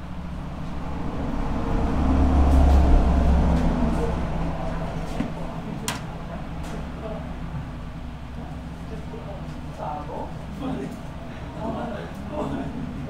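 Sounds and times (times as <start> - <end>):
heavy vehicle passing by: 0.0 - 7.6.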